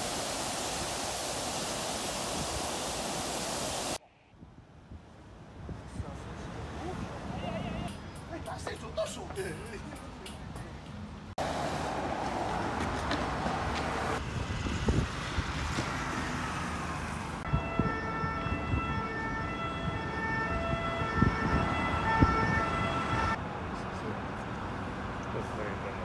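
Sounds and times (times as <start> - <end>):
city traffic noise: 4.0 - 26.0
emergency vehicle siren: 17.4 - 23.4.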